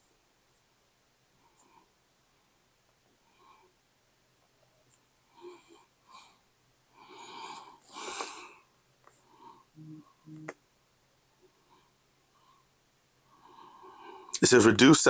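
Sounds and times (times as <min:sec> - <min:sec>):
man breathing through nose: 0:07.0 - 0:09.7
fingers tapping phone screen: 0:09.0 - 0:10.6
short low buzzes: 0:09.8 - 0:10.5.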